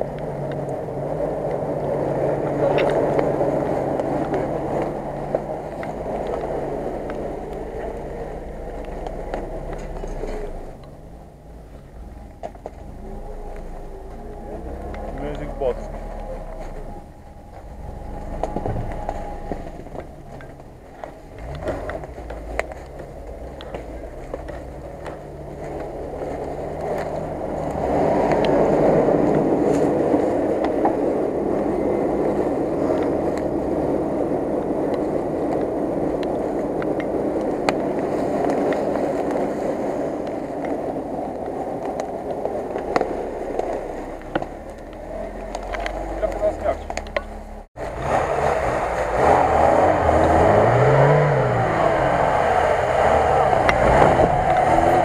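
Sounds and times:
leaves and twigs crunching: 0:00.0 - 0:33.5
car engine running low: 0:00.0 - 0:55.0.

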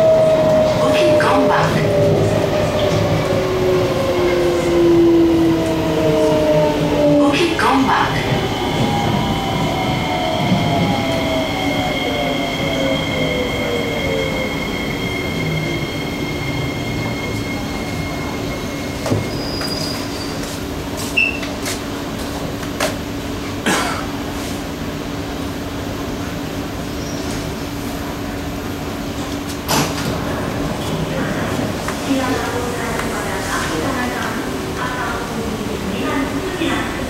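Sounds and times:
train car rumble: 0:00.0 - 0:37.0
clicks and knocks from train: 0:29.2 - 0:30.2.

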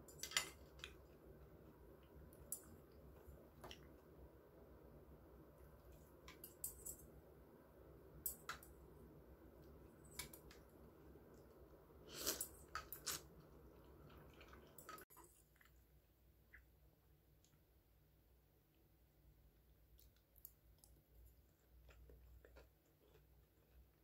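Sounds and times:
chewing: 0:12.1 - 0:15.8, 0:20.0 - 0:24.0.

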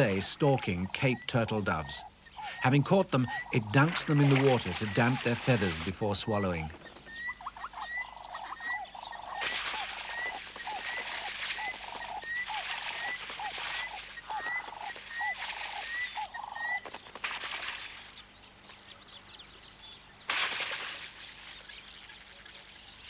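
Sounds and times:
water splashing: 0:02.4 - 0:06.7, 0:09.4 - 0:16.3, 0:17.1 - 0:18.2
wings flapping: 0:02.4 - 0:07.8, 0:09.2 - 0:18.2, 0:20.3 - 0:21.6.

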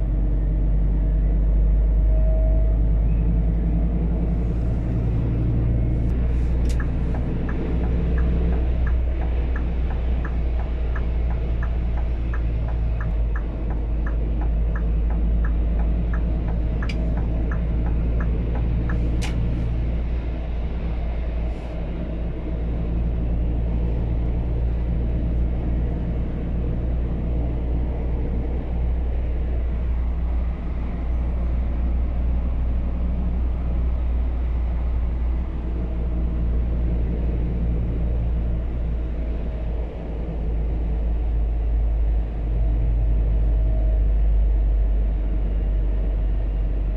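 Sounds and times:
road rumble: 0:00.0 - 0:46.9
truck engine running: 0:02.8 - 0:46.9
turn signal ticking: 0:06.1 - 0:19.9.

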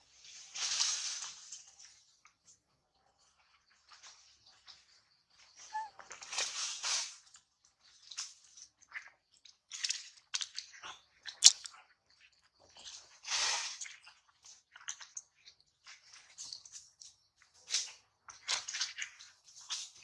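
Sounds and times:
leaves rustling and crackling: 0:00.0 - 0:02.2.

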